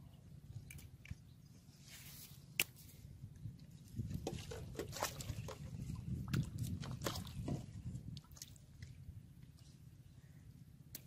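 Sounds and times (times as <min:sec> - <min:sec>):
small irregular clicks and crackles: 0:00.5 - 0:01.3.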